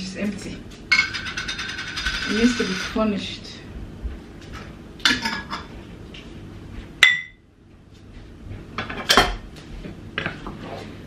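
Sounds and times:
utensils clinking against cookware: 0.9 - 3.0, 5.1 - 5.7.

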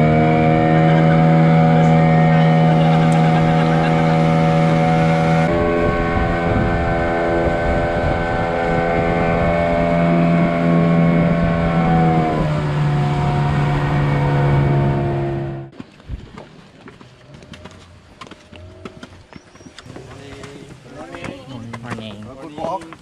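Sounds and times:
outboard motor running: 0.0 - 16.0
water noise: 0.0 - 23.0
wind noise: 4.7 - 14.2.

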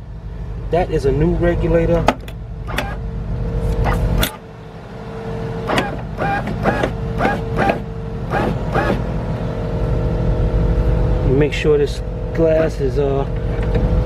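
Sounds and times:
car engine idling: 0.0 - 14.0
power window motor whine: 2.6 - 3.0, 3.6 - 4.5, 5.5 - 9.2
clicks and squeaks of window glass: 2.7 - 3.0.

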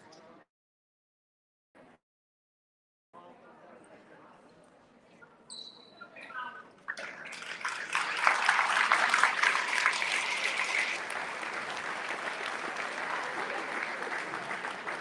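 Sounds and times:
short high whistle: 5.5 - 6.0
crowd clapping and cheering: 6.9 - 15.0.

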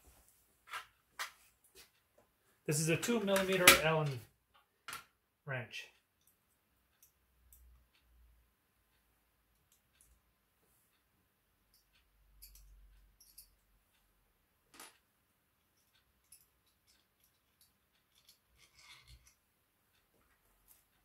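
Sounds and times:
small metal hardware clicks and scrapes: 11.7 - 13.6, 15.8 - 19.4.

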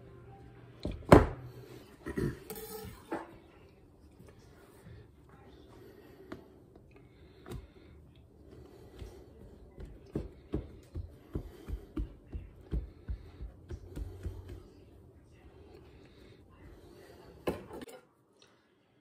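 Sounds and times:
hands patting pie dough: 8.8 - 15.0.

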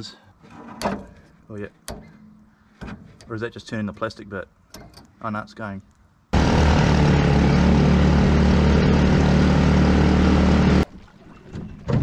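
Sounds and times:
boat engine running: 6.4 - 12.0.

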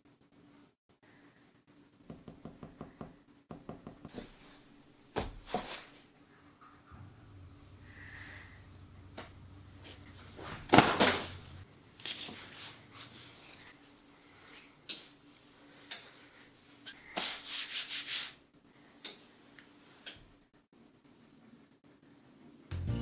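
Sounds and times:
cloth apron rustling: 4.1 - 6.1, 9.1 - 14.8.

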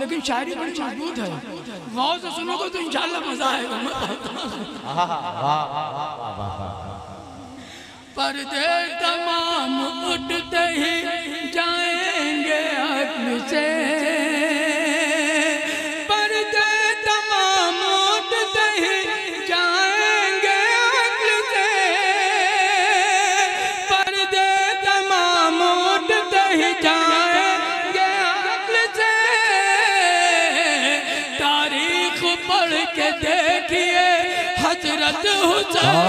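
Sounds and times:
man singing solo: 17.5 - 36.0.

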